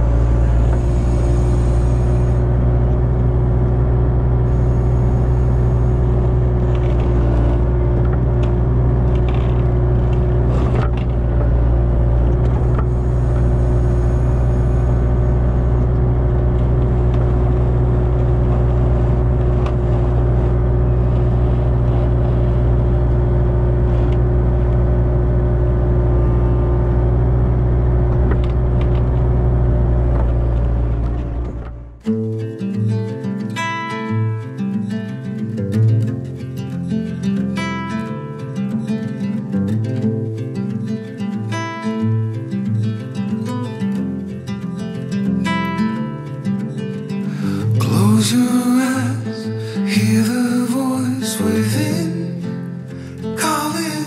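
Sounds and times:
excavator diesel engine running: 0.0s - 32.1s.

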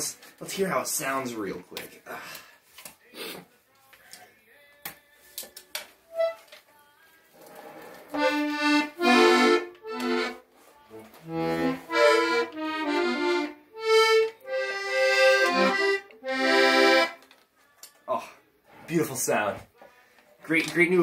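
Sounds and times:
button accordion playing: 6.1s - 6.5s, 8.1s - 17.2s.

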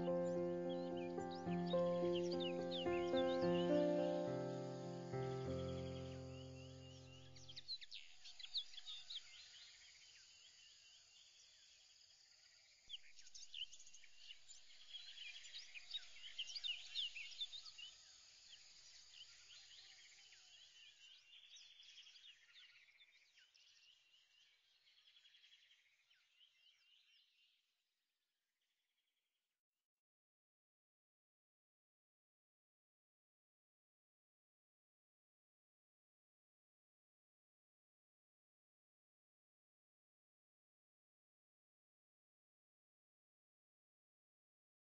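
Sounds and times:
high bird chirps: 0.0s - 7.4s.

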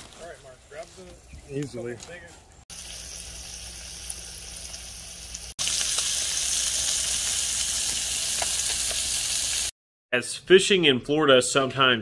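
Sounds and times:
fish sizzling in oil: 2.7s - 9.7s
oil pops and crackles: 4.0s - 9.2s.

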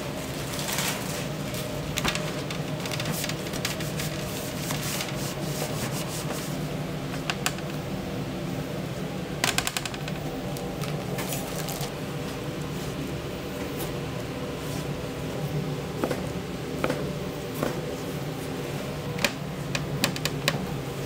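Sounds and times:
scraping and rubbing food prep: 0.0s - 7.4s
machine hum: 0.0s - 21.0s.

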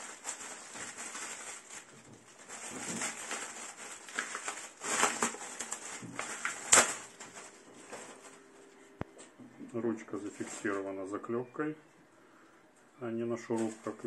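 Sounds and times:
plastic bag crinkling: 0.0s - 8.6s, 13.4s - 14.0s.

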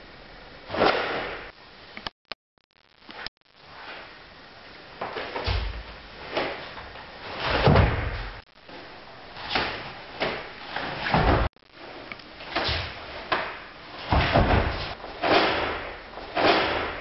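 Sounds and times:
jackets swishing and snapping: 12.5s - 17.0s
feet on foam mats: 12.6s - 17.0s.

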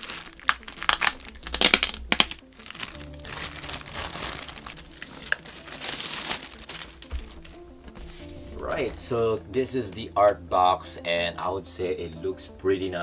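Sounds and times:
plastic wrap crinkling: 0.0s - 7.8s.

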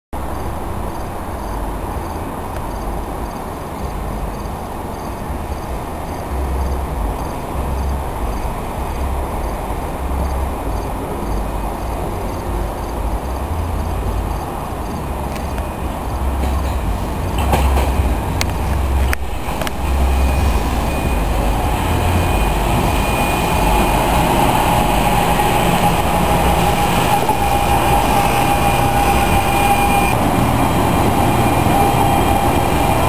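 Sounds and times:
faint electric train running: 0.2s - 33.0s
insects chirping: 0.2s - 33.0s
low gusty rumble: 0.2s - 33.0s.

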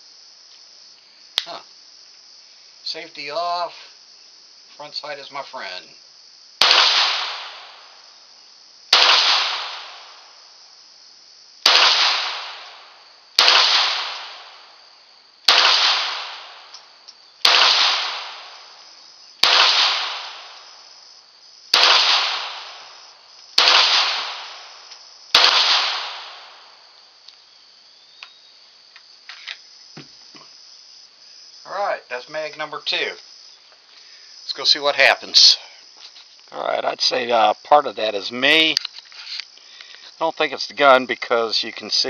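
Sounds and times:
pistol shots with long echo: 6.6s - 8.0s, 8.9s - 10.3s, 11.6s - 14.8s, 15.5s - 16.7s, 17.4s - 18.8s, 19.4s - 20.7s, 21.7s - 23.0s, 23.6s - 26.8s.

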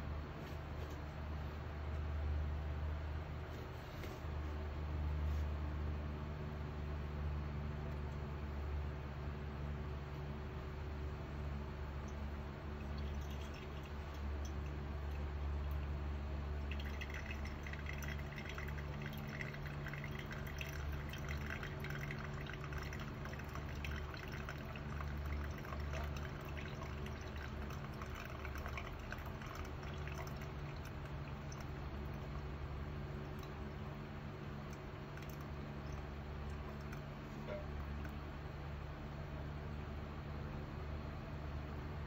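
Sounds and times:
steady low hum: 0.0s - 42.0s
water trickling onto coffee grounds: 12.0s - 38.2s.

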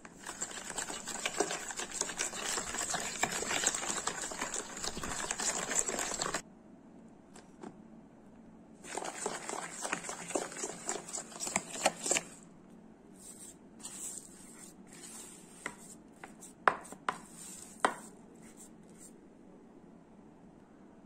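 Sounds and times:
dough being kneaded by hand: 0.0s - 6.4s, 8.8s - 12.4s
whisk scraping a plastic bowl: 0.0s - 6.4s, 8.8s - 12.4s.

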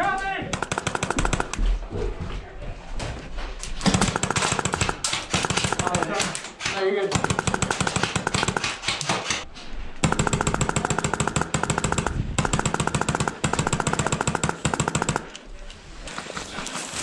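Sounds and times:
airsoft rifle full-auto bursts: 0.5s - 1.6s, 3.9s - 6.2s, 7.1s - 9.4s, 10.0s - 15.4s.

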